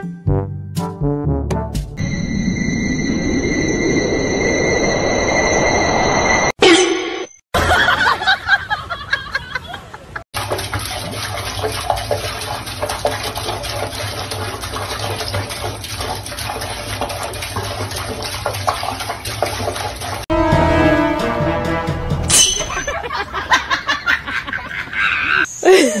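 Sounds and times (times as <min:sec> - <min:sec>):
tap water running into sink: 0:10.4 - 0:20.2
water splashing: 0:10.4 - 0:20.3.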